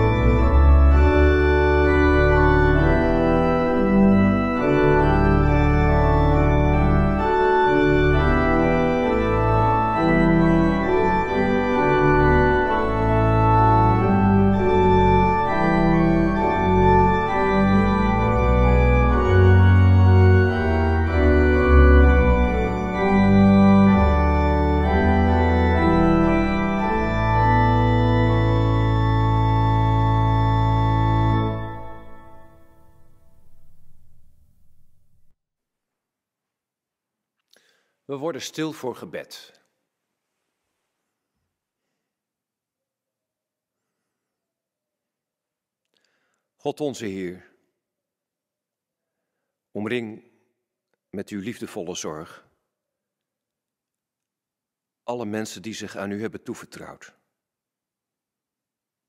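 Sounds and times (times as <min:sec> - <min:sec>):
church organ playing hymn: 0:00.0 - 0:35.3.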